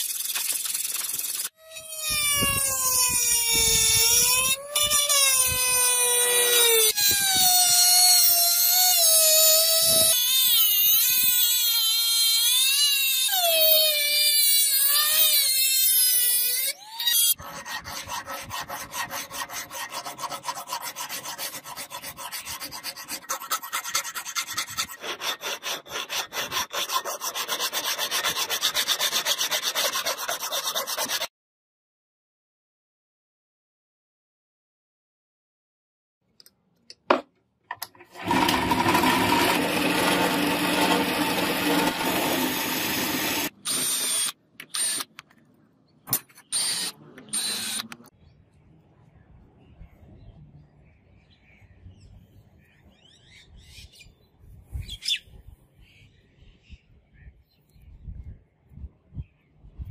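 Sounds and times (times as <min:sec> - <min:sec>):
hand file rasping on metal: 0:17.4 - 0:31.3
rotary tool whining on metal: 0:37.9 - 0:45.1, 0:46.5 - 0:48.0.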